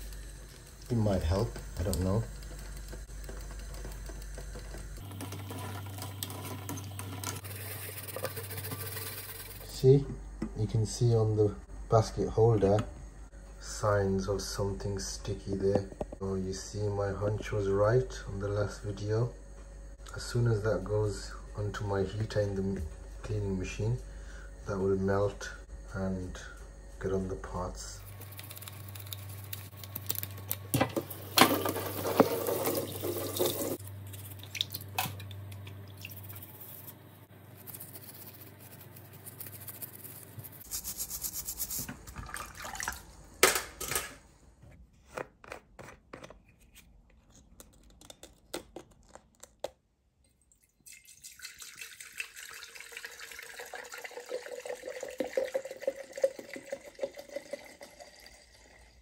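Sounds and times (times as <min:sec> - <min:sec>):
liquid pouring and filling: 0:31.5 - 0:33.8, 0:42.2 - 0:43.2, 0:50.5 - 0:59.0
water splashing in a metal sink: 0:31.5 - 0:36.3, 0:42.1 - 0:43.1.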